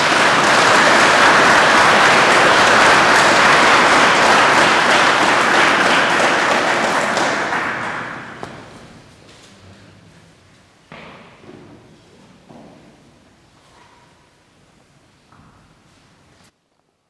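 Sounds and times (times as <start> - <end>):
congregation applauding: 0.0 - 9.0.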